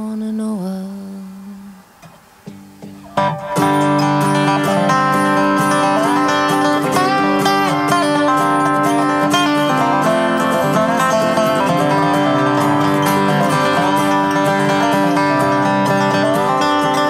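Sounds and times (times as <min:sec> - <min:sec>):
acoustic guitar: 0:00.0 - 0:17.0
dobro with sliding notes: 0:00.0 - 0:17.0.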